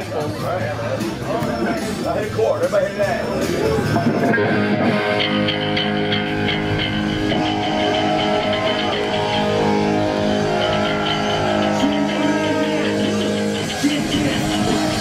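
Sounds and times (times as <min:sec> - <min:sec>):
steady ticking beat: 0:01.4 - 0:15.0
electric guitar sustained chords: 0:04.0 - 0:15.0.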